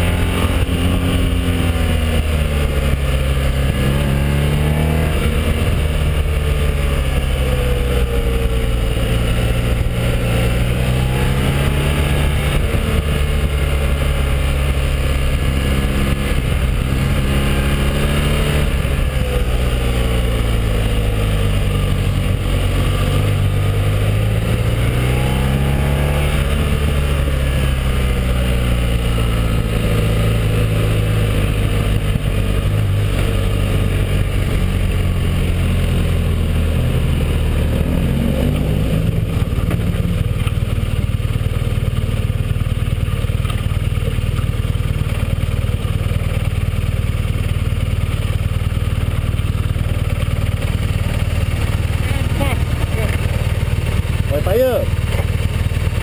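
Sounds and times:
wind noise: 0.0s - 28.2s
motorcycle engine running: 0.0s - 56.0s.

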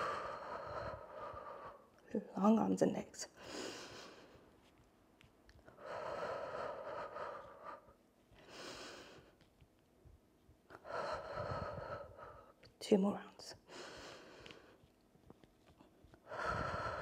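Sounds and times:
woman breathing hard: 0.0s - 2.0s, 3.4s - 4.5s, 5.7s - 9.4s, 10.7s - 12.7s, 13.7s - 14.9s, 16.2s - 17.0s.

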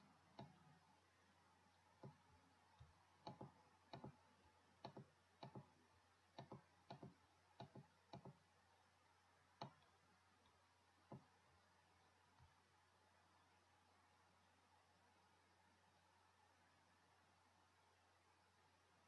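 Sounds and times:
computer mouse button clicking: 3.2s - 4.2s, 4.8s - 5.7s, 6.4s - 8.4s.

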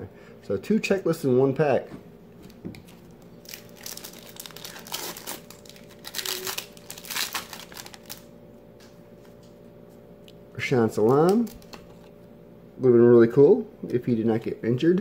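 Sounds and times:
foil wrapper crinkling and tearing: 2.9s - 8.3s, 11.0s - 12.0s.

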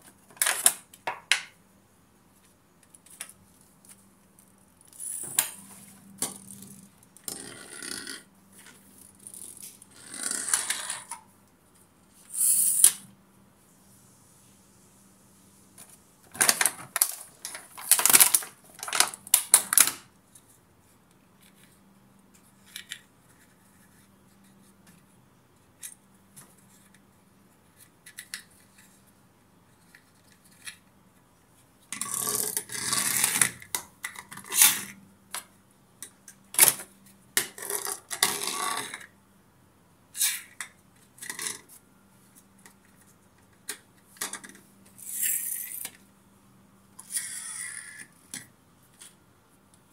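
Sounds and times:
plastic blister pack crinkling: 16.4s - 20.0s
plastic toys clicking and tapping: 43.4s - 46.0s.

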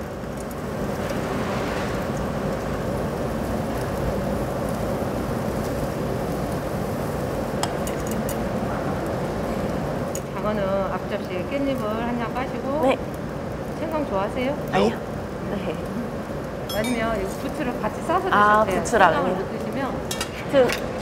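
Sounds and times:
eel sizzling over charcoal: 0.0s - 21.0s
light metal clinks: 16.7s - 17.2s.

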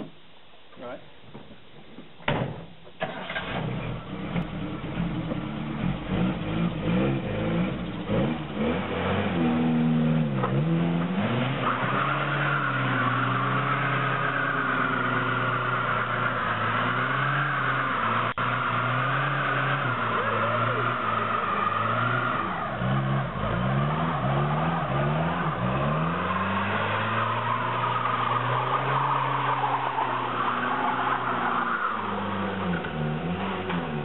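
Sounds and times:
car engine revving: 3.0s - 34.0s
tyres squealing: 11.6s - 33.4s.

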